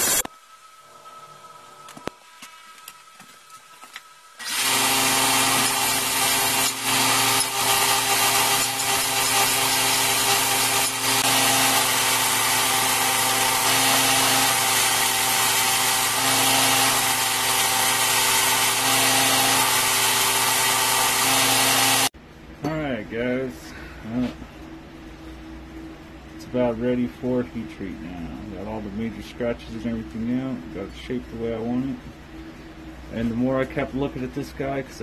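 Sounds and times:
belt grinder grinding steel: 4.4s - 22.1s.

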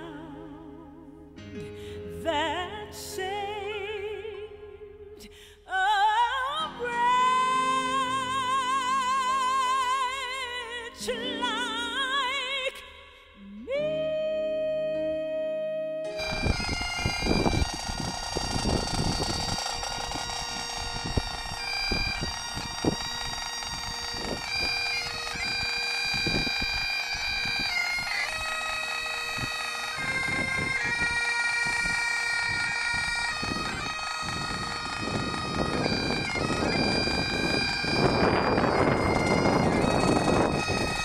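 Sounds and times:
bagpipes playing slow tune: 16.1s - 41.0s
wind buffeting microphone: 16.2s - 41.0s.

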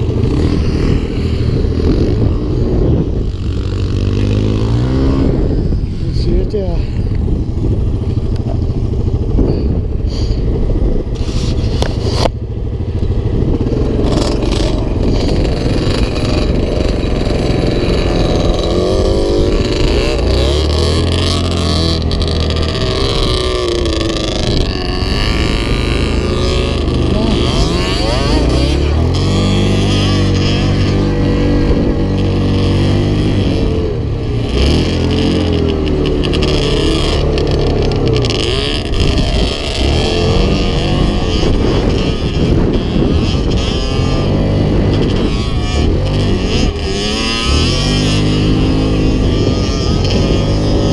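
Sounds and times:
other quad engines: 0.0s - 50.9s
quad bike engine revving: 0.0s - 50.9s.

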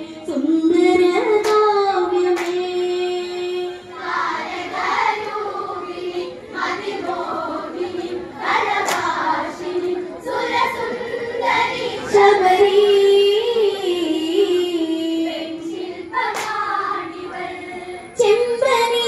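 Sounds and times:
women singing in chorus: 0.0s - 19.0s
handclaps: 1.4s - 1.7s, 2.3s - 2.7s, 8.8s - 9.2s, 16.2s - 16.7s.

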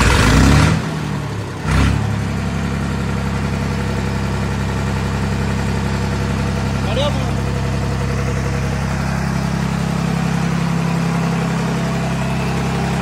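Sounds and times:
tractor engine idling: 0.0s - 13.0s.

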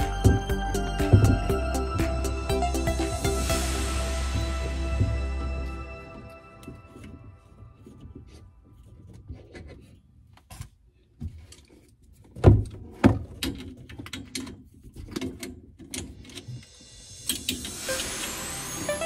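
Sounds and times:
knocks and clicks of objects handled: 0.2s - 1.6s, 6.6s - 16.7s.

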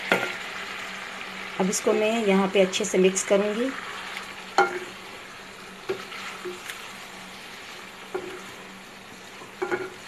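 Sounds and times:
food sizzling in a pan: 0.0s - 10.0s
spoon knocking against pan: 9.6s - 10.0s.

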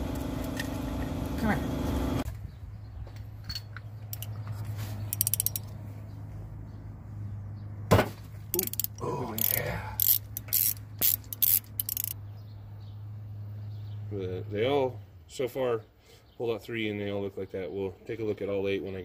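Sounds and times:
socket ratchet clicking: 4.1s - 4.4s, 5.1s - 5.8s, 8.5s - 12.2s.

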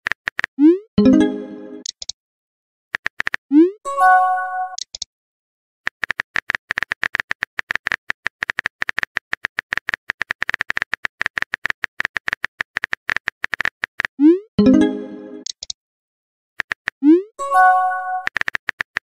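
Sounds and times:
message chime: 1.0s - 1.8s, 14.6s - 15.4s, 17.4s - 18.3s.

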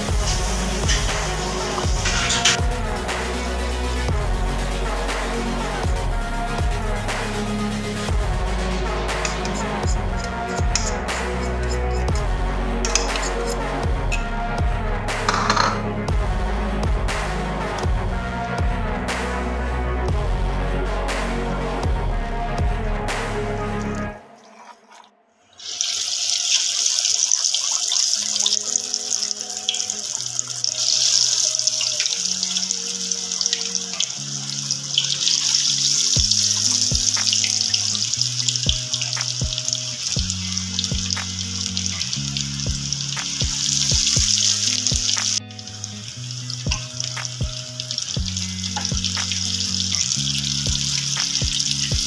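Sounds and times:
background music with beat: 0.0s - 24.2s, 28.8s - 52.0s
fish frying in hot oil: 25.6s - 52.0s.

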